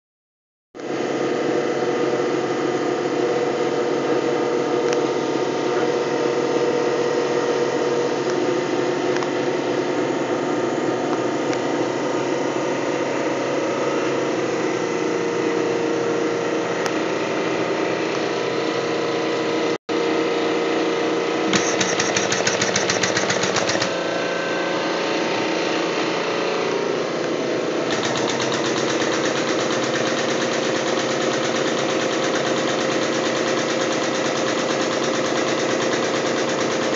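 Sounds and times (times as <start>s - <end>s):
fast rattle: 21.5s - 24.0s, 27.9s - 36.9s.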